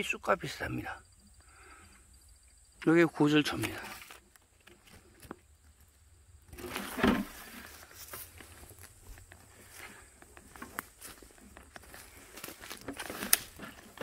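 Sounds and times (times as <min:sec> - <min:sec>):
footsteps in dry leaves: 0:06.6 - 0:14.0.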